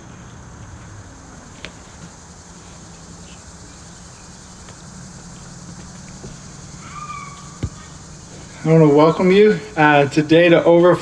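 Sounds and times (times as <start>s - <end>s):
high insect drone: 0.0s - 11.0s
low steady hum: 0.0s - 11.0s.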